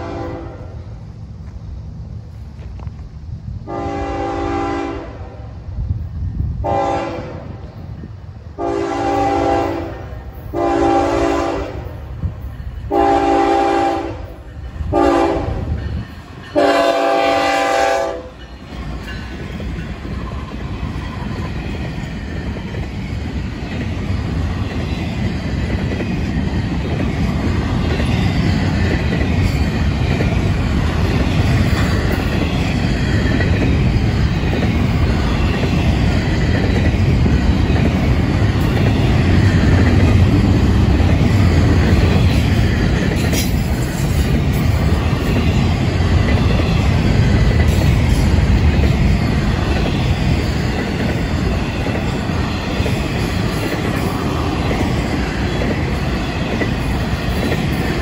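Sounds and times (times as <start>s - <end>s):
locomotive air horn blasts: 0.0s - 0.8s, 3.6s - 5.5s, 6.6s - 7.6s, 8.6s - 11.9s, 12.9s - 14.3s, 14.9s - 15.7s, 16.5s - 18.4s
train wheels rumbling on rails: 0.0s - 58.0s.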